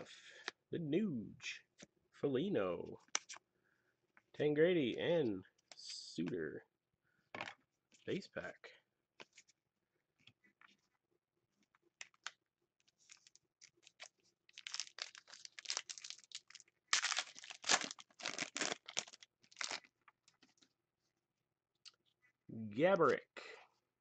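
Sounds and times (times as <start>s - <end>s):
foil pack tearing and crinkling: 13.9s - 19.8s.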